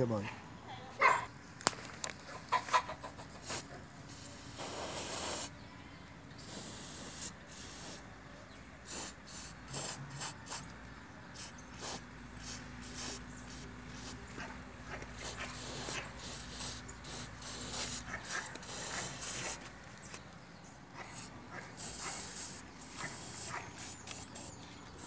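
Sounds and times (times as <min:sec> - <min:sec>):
aerosol spray can hissing: 0:03.4 - 0:05.5, 0:06.4 - 0:08.0, 0:08.9 - 0:10.7, 0:11.4 - 0:14.2, 0:15.2 - 0:19.6, 0:21.1 - 0:25.0.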